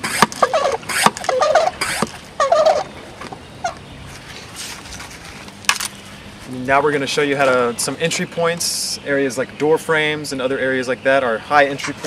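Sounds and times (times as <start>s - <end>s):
hand pump clicking and squeaking: 0.0s - 2.2s, 11.7s - 12.0s.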